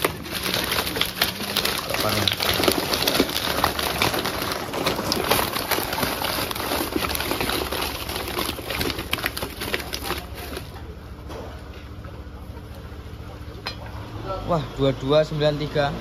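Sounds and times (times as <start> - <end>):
water splattering: 0.0 - 10.6
fish flapping in a net: 0.0 - 10.7
net rustling: 0.0 - 10.7.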